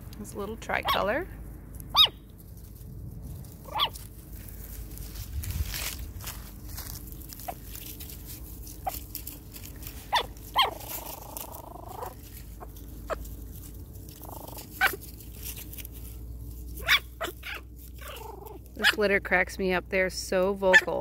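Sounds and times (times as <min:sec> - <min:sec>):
puppies yipping and barking: 0:00.7 - 0:01.2, 0:01.9 - 0:02.3, 0:03.6 - 0:04.1, 0:08.7 - 0:19.2, 0:20.6 - 0:21.0
puppy drawn-out cry: 0:03.6 - 0:04.0, 0:10.1 - 0:12.2, 0:14.2 - 0:15.0, 0:16.8 - 0:19.0.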